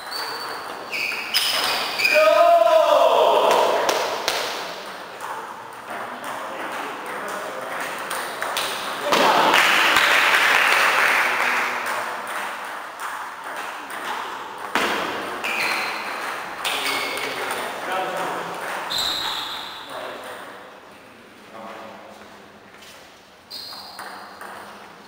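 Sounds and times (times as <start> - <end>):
voices: 2.0 - 12.3.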